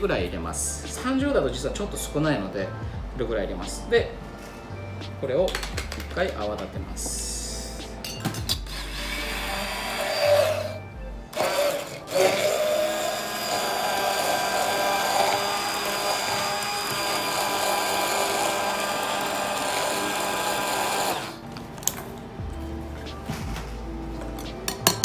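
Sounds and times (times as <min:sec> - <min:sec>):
immersion blender running: 0:08.7 - 0:21.4.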